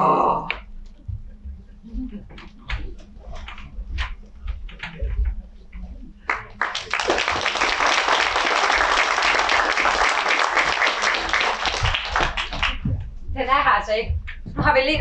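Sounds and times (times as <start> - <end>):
audience applauding: 6.3 - 12.9.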